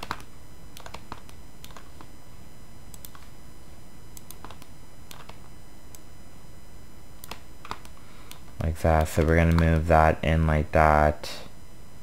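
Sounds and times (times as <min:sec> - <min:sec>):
low background hum: 0:00.0 - 0:12.0
mouse and keyboard clicks: 0:04.2 - 0:05.4.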